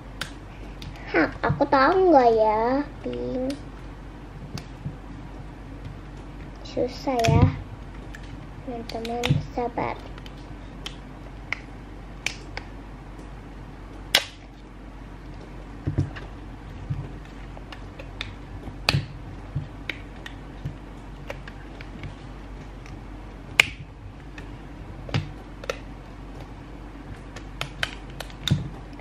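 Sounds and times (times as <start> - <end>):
soft bumps of ball handled: 15.4 - 17.6.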